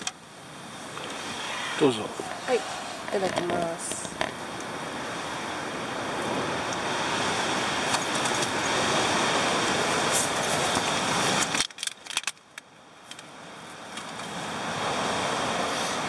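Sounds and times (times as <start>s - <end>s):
wind shaking a tent: 0.9s - 12.4s.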